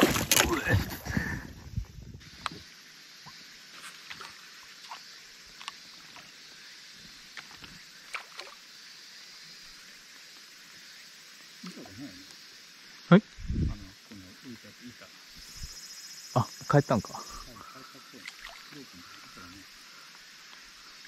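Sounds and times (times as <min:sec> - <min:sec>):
faint steady hiss: 0:01.0 - 0:21.0
water plinks and lapping: 0:07.3 - 0:08.7, 0:17.4 - 0:19.5.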